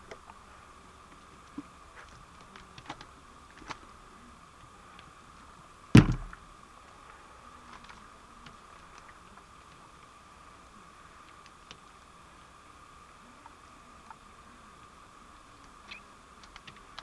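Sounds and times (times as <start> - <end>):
bottle thumping on wooden step: 6.0 - 6.3
faint wet clicks: 15.6 - 17.0.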